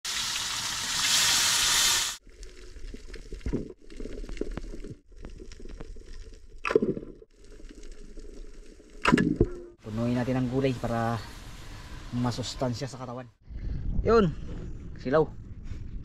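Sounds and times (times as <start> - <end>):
fish sizzling in hot wok: 0.1 - 2.2.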